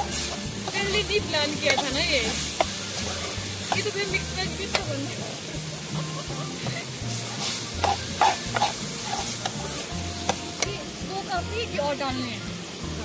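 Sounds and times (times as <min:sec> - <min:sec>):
metal ladle scraping a pan: 0:00.0 - 0:05.2, 0:05.8 - 0:10.7
vegetables sizzling in a pan: 0:00.0 - 0:13.0.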